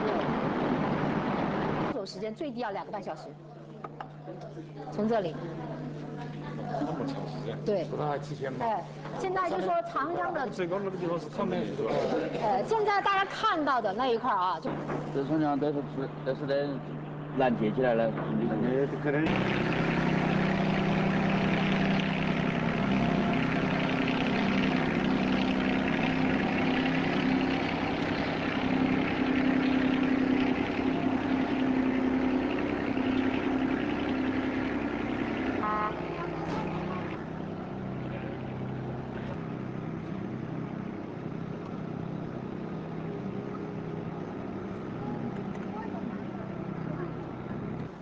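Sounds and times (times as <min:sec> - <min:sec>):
boat engine droning: 0:00.0 - 0:48.0.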